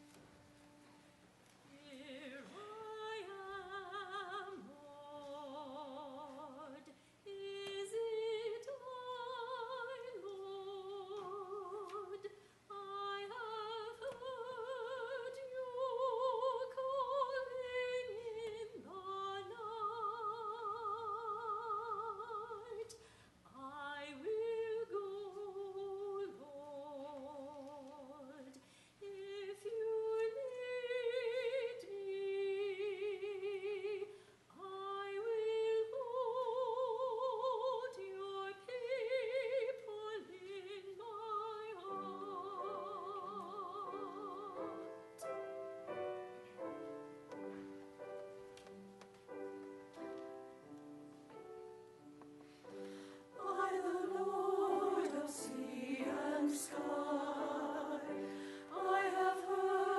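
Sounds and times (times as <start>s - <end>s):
piano: 0.0s - 23.0s, 23.6s - 59.9s
woman singing with vibrato: 1.7s - 22.9s, 23.5s - 44.9s, 53.4s - 59.9s.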